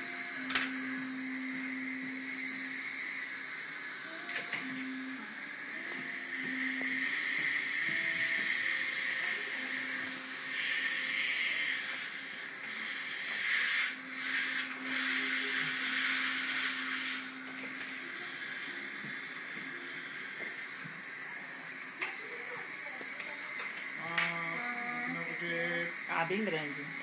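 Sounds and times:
dental air hissing: 5.9s - 27.0s.

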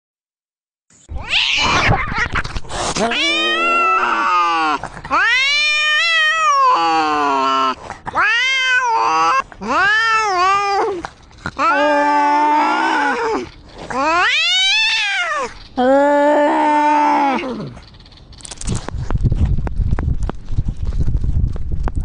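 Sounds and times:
cats yowling: 1.1s - 2.4s, 3.0s - 17.8s
cat hissing: 1.2s - 6.8s.

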